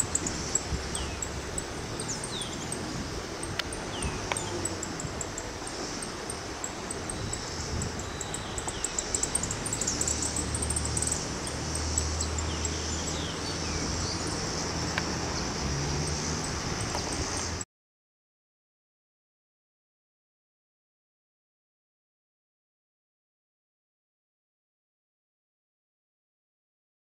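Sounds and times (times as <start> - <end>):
birds chirping: 0.0 - 17.6.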